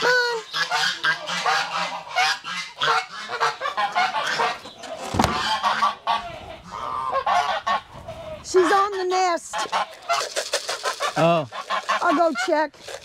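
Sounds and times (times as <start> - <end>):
geese honking loudly: 0.0 - 12.7
thump: 5.1 - 5.5.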